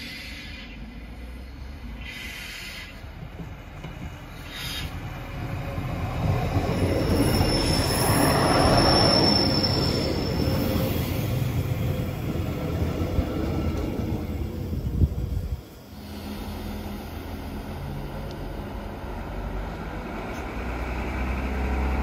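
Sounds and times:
train rumble: 0:00.0 - 0:22.0
high thin squeal: 0:07.0 - 0:11.4.

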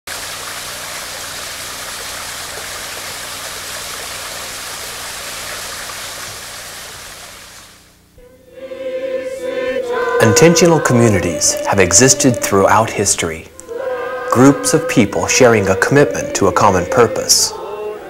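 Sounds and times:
rushing water: 0:00.1 - 0:07.8
music with long held note: 0:08.2 - 0:18.0.

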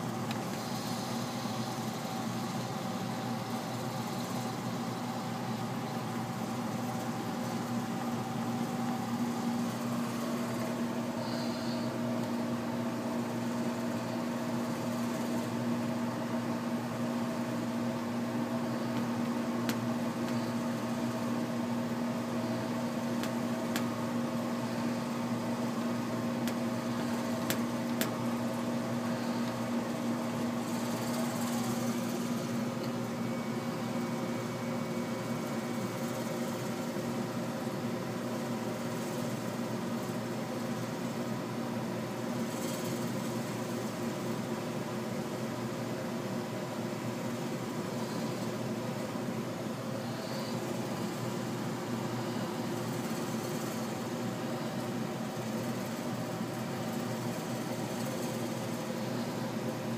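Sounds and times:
heat pump humming: 0:00.0 - 0:59.9.

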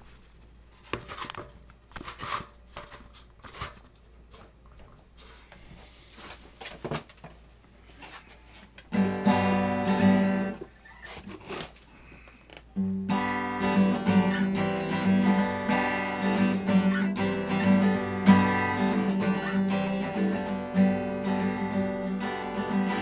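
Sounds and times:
handling knocks and rustles: 0:00.0 - 0:08.9
acoustic guitar chord strummed: 0:08.9 - 0:10.6, 0:12.8 - 0:23.0.

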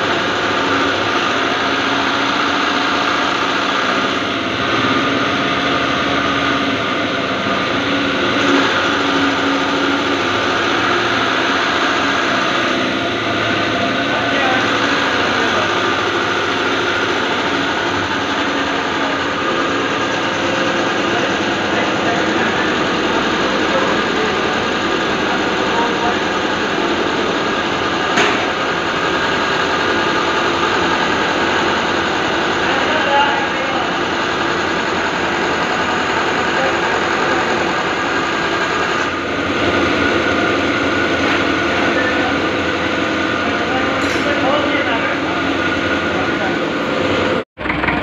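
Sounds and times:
fuel pump test bench running: 0:00.0 - 0:48.0.

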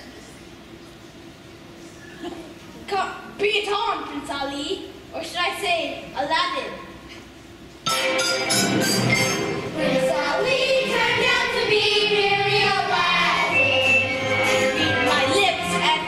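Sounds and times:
musical accompaniment: 0:07.8 - 0:16.0
children singing: 0:09.7 - 0:16.0.

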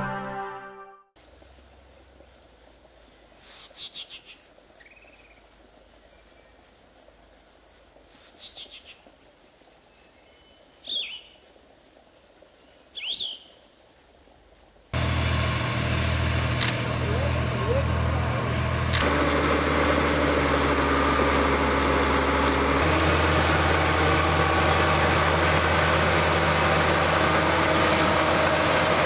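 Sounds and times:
birds chirping: 0:03.2 - 0:06.7, 0:08.1 - 0:09.2, 0:09.8 - 0:11.5, 0:12.5 - 0:13.7
sharp bird calls: 0:03.4 - 0:05.4, 0:08.1 - 0:09.1, 0:10.0 - 0:11.4, 0:12.7 - 0:13.7.

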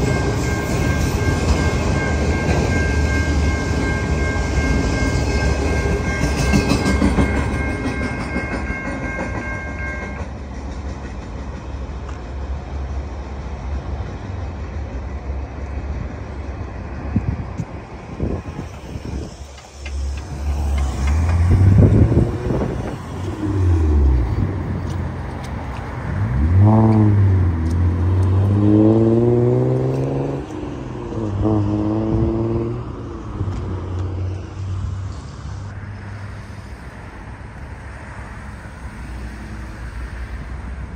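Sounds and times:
steady engine rumble: 0:10.2 - 0:28.6
cars accelerating: 0:18.2 - 0:35.2.

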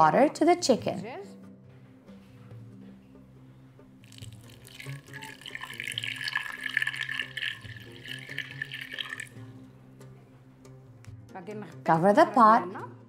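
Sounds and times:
water pouring into a pot: 0:04.0 - 0:09.5.

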